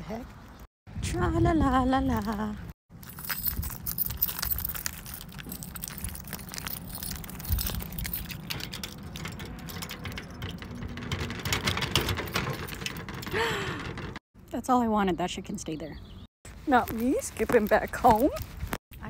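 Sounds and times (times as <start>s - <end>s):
keys jangling: 3.0s - 13.5s
key going into mailbox lock: 3.0s - 14.2s.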